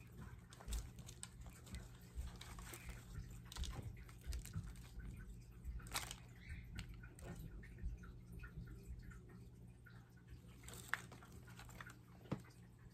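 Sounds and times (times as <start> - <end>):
damp soil squishing and crumbling: 0.0 - 7.3
plastic wrap crinkling: 0.0 - 7.4, 10.5 - 12.6
low steady hum: 0.0 - 12.9.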